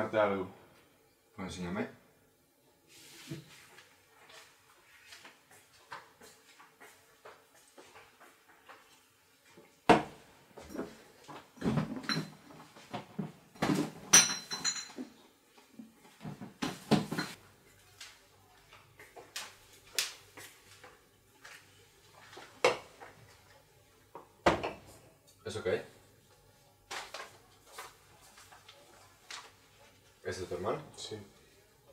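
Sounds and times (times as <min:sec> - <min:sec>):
kitchen objects knocking and clattering: 0:09.9 - 0:15.2, 0:16.2 - 0:17.4, 0:22.5 - 0:23.1, 0:24.1 - 0:24.9.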